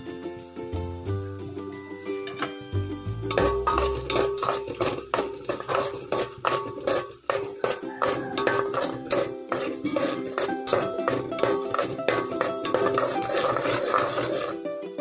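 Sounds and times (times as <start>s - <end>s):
background music with plucked beat: 0.0s - 6.8s, 8.0s - 15.0s
onions frying in oil: 0.3s - 15.0s
spoon scraping metal pot: 3.3s - 14.6s.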